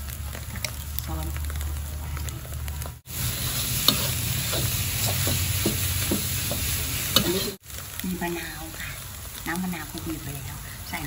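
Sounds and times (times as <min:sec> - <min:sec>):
food sizzling in a wok: 0:00.0 - 0:11.0
metal spatula scraping pan: 0:03.4 - 0:07.6.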